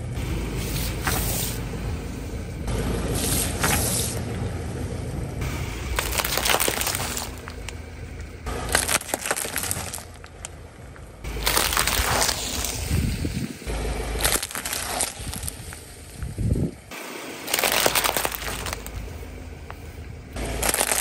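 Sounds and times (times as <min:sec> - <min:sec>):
car low rumble: 0:00.0 - 0:21.0
tyre crushing plastic crackles: 0:03.2 - 0:04.2, 0:05.8 - 0:13.1, 0:14.1 - 0:16.3, 0:17.4 - 0:19.8, 0:20.4 - 0:21.0.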